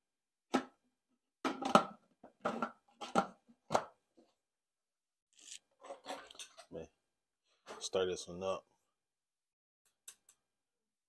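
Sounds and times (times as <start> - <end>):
kitchen items knocking and clattering: 0.5 - 0.8, 1.4 - 4.4, 5.7 - 6.8.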